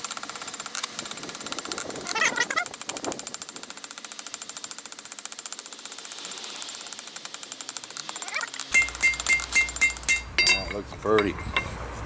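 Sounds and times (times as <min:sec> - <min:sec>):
hammer ringing on anvil: 0:08.7 - 0:11.7.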